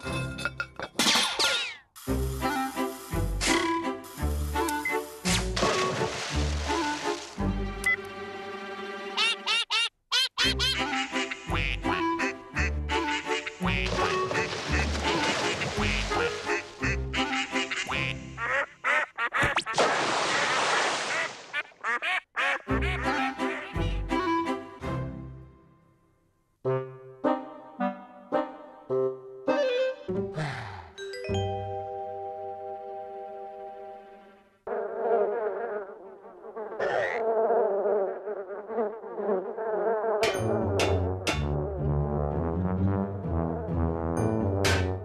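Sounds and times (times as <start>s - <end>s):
music: 2.0s - 9.5s, 10.4s - 18.4s, 22.7s - 34.6s, 40.2s - 45.0s
cartoon ducks quacking: 9.2s - 19.6s, 21.1s - 24.0s
cartoon bees buzzing: 34.7s - 40.3s.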